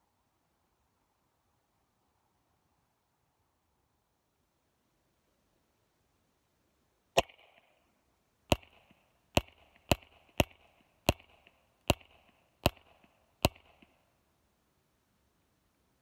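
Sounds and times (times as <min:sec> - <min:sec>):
suppressed pistol shots: 0:07.2 - 0:07.8, 0:08.5 - 0:14.0.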